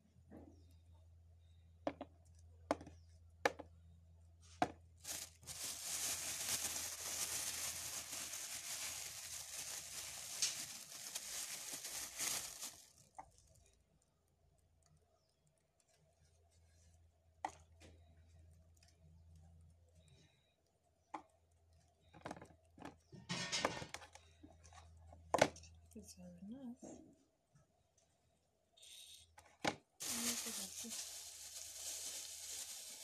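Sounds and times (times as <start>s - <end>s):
plastic packaging crinkling: 5.0s - 13.7s, 30.0s - 33.0s.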